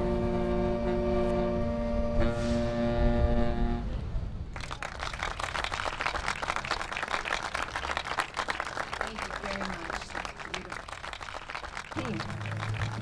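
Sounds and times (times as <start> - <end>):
saxophone quartet chord: 0.0 - 3.9
audience applauding: 4.5 - 13.0.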